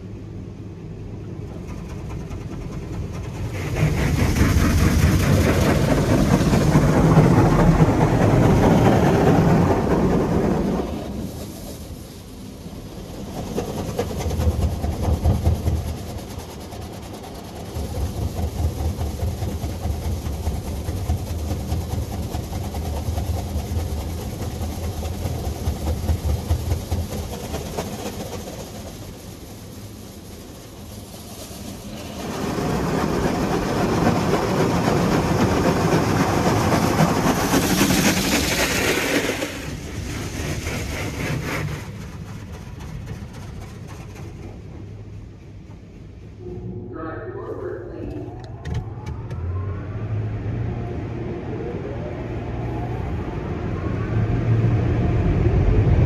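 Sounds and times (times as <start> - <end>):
low pulsing rumble: 41.7 - 56.0.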